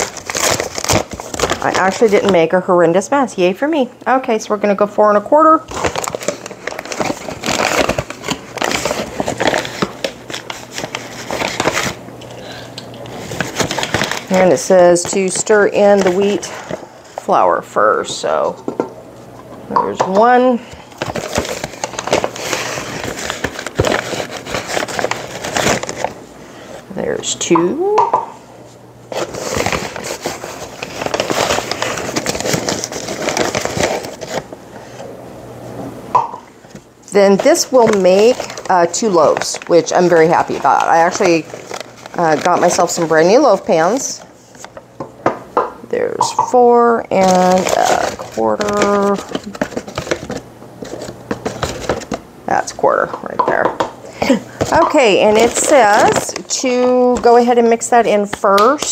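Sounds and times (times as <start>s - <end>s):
paper bag rustling: 5.7s - 12.0s, 13.1s - 17.3s, 20.5s - 26.2s, 29.1s - 35.0s, 36.6s - 44.7s, 46.7s - 52.2s, 54.2s - 58.0s.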